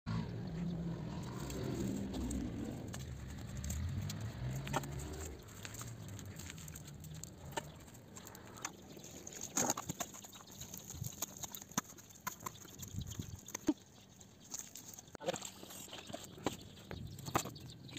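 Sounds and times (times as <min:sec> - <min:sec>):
low hum: 0:00.1 - 0:08.6
twig fire crackling: 0:00.9 - 0:13.6
dry sticks snapping: 0:01.2 - 0:12.4.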